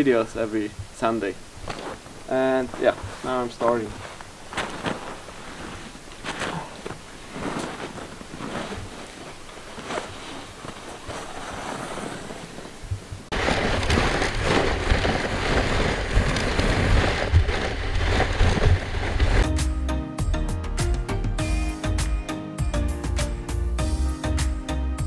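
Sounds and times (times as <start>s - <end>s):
soft crunches in snow: 0.0s - 19.6s
music: 19.4s - 25.0s.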